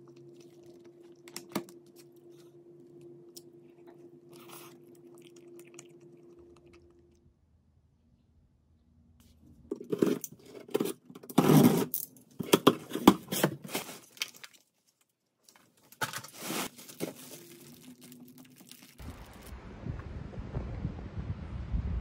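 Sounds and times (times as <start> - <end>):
packing tape ripping: 16.0 - 19.0.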